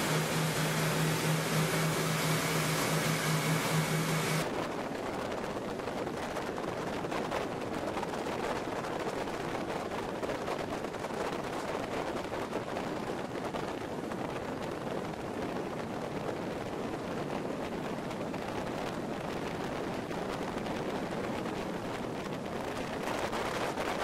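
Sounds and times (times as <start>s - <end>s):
boat hull spray rushing: 0.0s - 4.5s.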